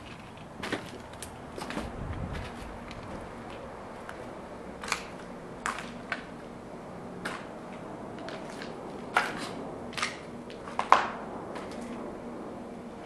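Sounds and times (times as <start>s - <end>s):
footsteps crunching on debris: 0.0s - 6.3s.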